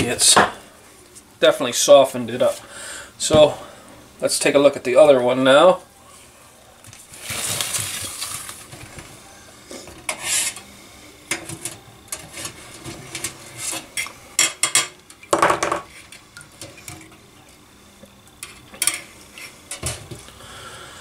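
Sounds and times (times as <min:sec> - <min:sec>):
metal scraping: 0:11.3 - 0:14.5.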